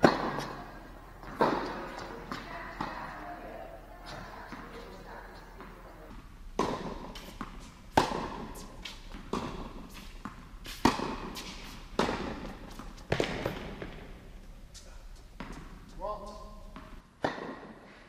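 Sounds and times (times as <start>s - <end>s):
tennis ball pops with echo: 0.0s - 0.7s.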